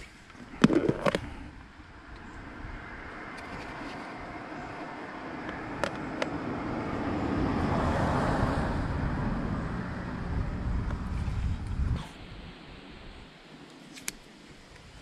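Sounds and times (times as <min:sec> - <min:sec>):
road vehicle passing: 0:02.0 - 0:12.7.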